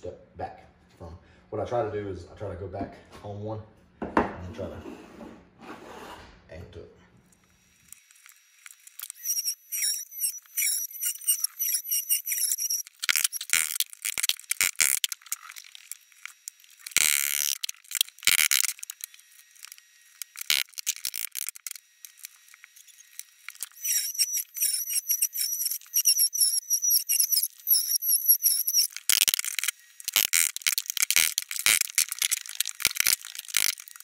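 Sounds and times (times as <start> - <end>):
multi-tool cutting wood: 7.4 - 34.0
scraping bursts: 7.9 - 34.0.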